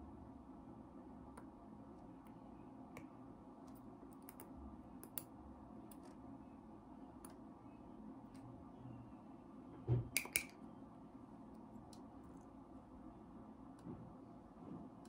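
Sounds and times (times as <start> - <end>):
low room hum: 0.0 - 15.0
metallic clicks of surgical tools: 10.2 - 10.6.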